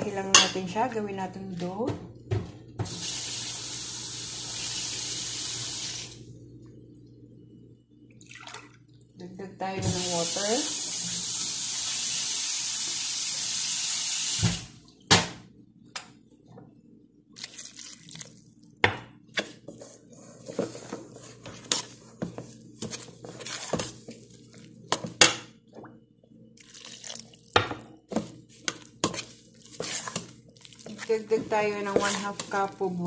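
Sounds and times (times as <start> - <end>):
hands mixing dough in metal bowl: 17.4 - 25.9, 26.6 - 33.0.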